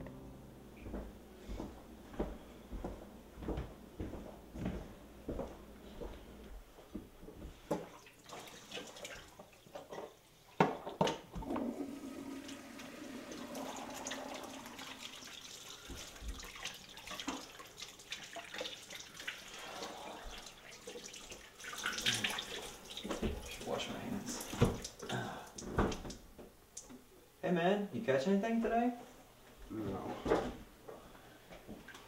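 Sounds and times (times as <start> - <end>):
hands being washed: 7.8 - 10.2, 11.4 - 26.2.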